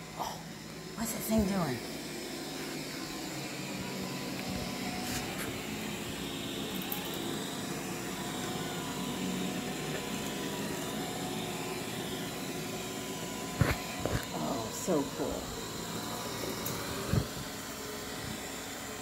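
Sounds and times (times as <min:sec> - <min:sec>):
robot vacuum whirring: 0:00.0 - 0:19.0.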